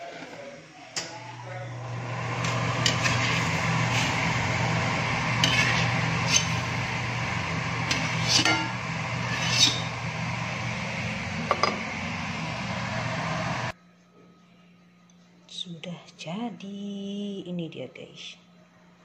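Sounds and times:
steady low hum: 1.1s - 13.8s
metal steamer tray and bowls clinking: 7.9s - 8.8s.

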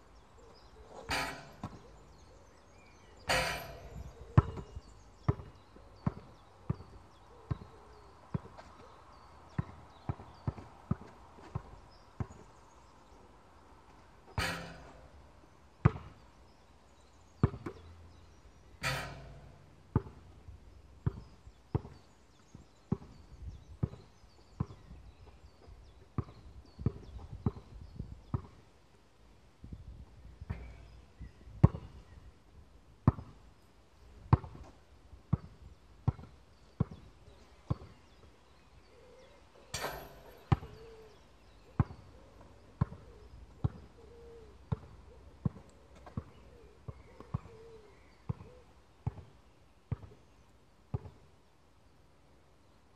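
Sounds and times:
ball ringing off hoop: 3.3s - 4.6s, 14.4s - 15.0s, 18.8s - 20.1s, 39.7s - 40.8s
basketball bouncing on hard court: 18.8s - 20.2s.

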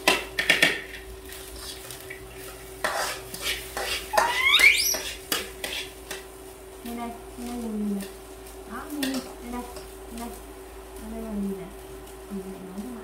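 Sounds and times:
metal spatula scraping wok: 2.8s - 6.1s
rising squeak: 4.2s - 5.0s.

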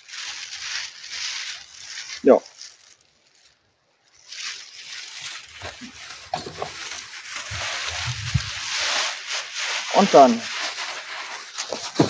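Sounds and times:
plastic bag rustling and crinkling: 0.0s - 12.0s
wind buffeting microphone: 7.9s - 8.6s.

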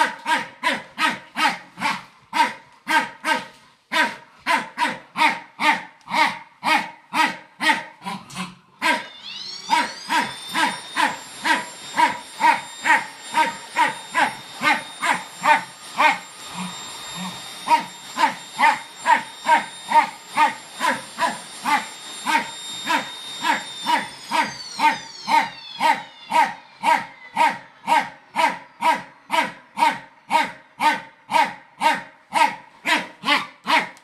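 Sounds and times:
dog barking: 0.0s - 8.2s, 25.9s - 34.0s
vacuum cleaner motor whining: 8.8s - 27.1s.

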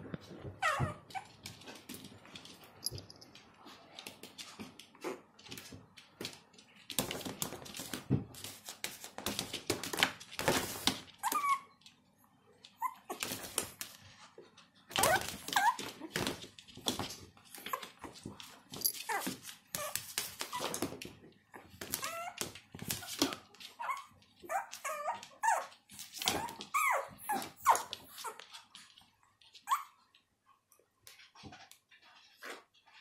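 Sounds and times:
puppies scuffling on floor: 0.0s - 12.0s, 12.7s - 30.2s
puppy whimpers: 0.6s - 1.3s, 11.2s - 11.8s, 12.8s - 13.2s, 15.0s - 16.1s, 21.9s - 22.4s, 23.0s - 28.4s, 29.6s - 30.0s.

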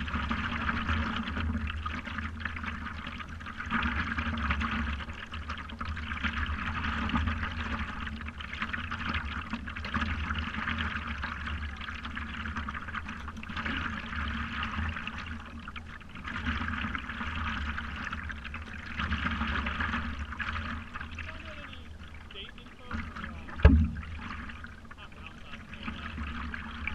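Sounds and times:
water splashing and gurgling: 0.0s - 26.9s
low rumble: 19.5s - 26.9s.

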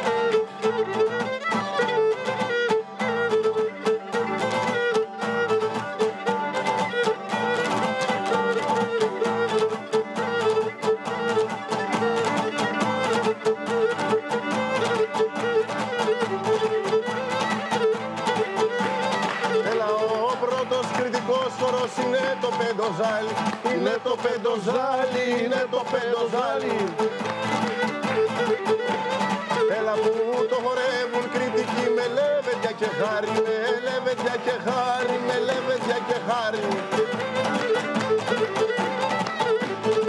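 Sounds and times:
lute strummed rhythmically: 0.0s - 40.0s.

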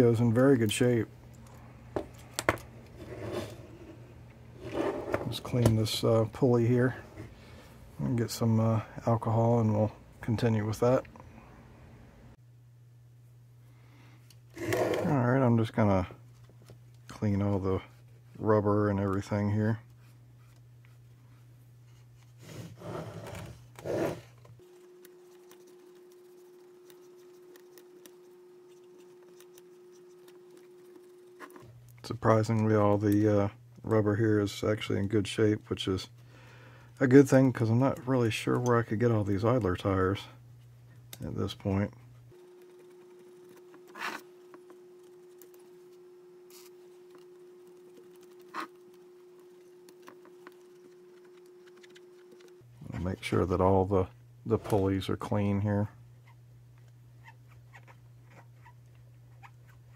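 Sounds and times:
steady low hum: 0.0s - 59.9s
cotton swab scraping: 22.0s - 31.6s, 42.4s - 52.5s.

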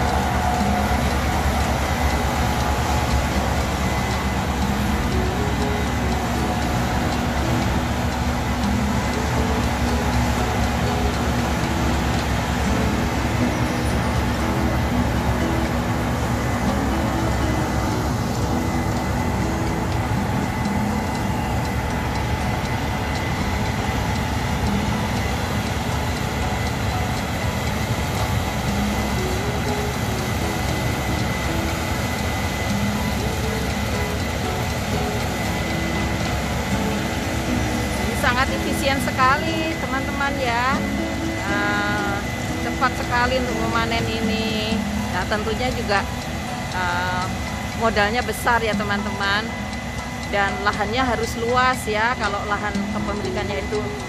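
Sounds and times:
combine harvester droning: 0.0s - 54.0s
faint high whine: 0.0s - 54.0s.

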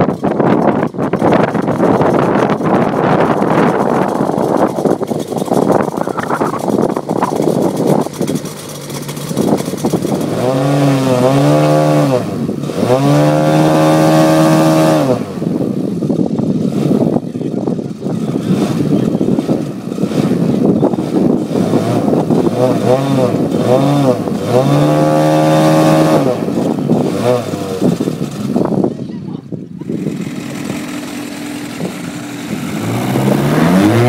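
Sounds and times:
model airplane engine running: 0.0s - 11.0s, 29.8s - 33.6s.

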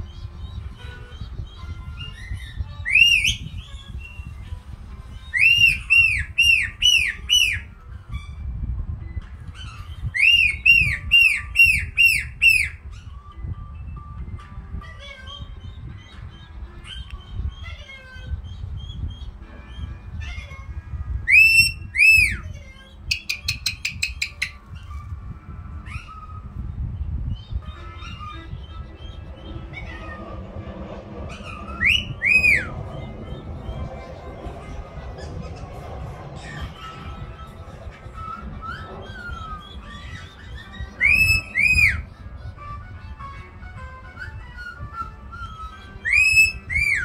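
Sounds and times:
parrot whistling: 1.5s - 4.4s, 5.2s - 8.4s, 9.5s - 13.2s, 21.2s - 26.7s, 27.3s - 34.1s, 35.0s - 42.6s, 44.0s - 47.0s
parrot clicking chirps: 23.1s - 24.6s.

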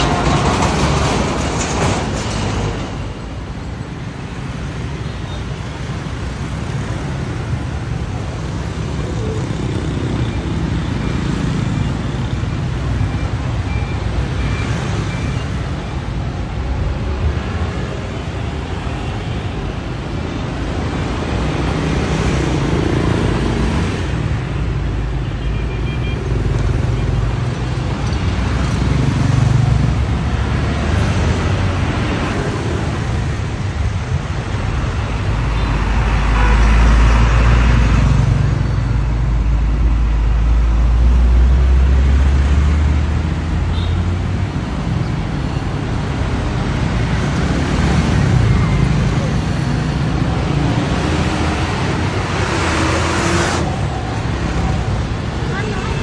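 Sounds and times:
truck rumble: 0.0s - 5.0s.

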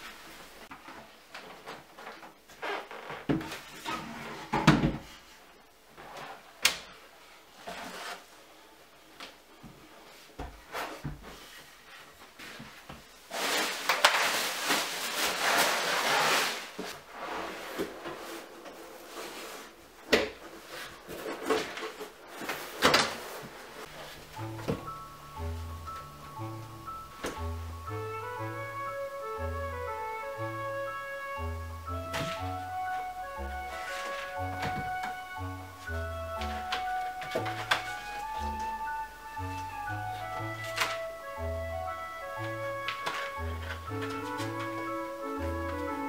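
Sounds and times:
plastic wrapping film rustling: 13.2s - 19.8s, 31.9s - 46.0s.

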